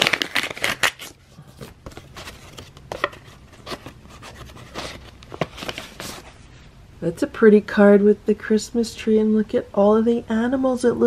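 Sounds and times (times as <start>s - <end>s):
paper envelope tearing: 0.0s - 1.2s
paper crackle: 0.0s - 6.4s.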